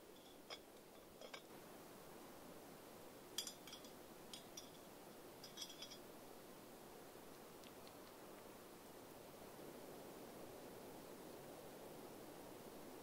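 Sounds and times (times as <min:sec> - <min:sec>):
metal lid and chain clinking: 0:00.1 - 0:01.5, 0:03.4 - 0:06.0.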